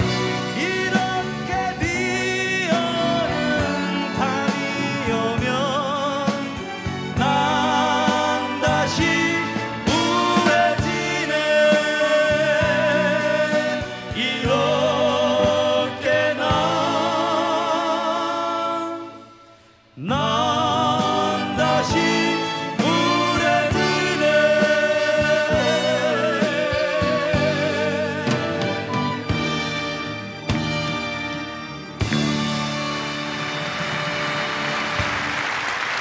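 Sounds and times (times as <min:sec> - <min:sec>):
band accompaniment: 0:00.0 - 0:36.0
male duo singing a ballad: 0:00.5 - 0:06.6, 0:07.2 - 0:19.2, 0:20.0 - 0:28.9.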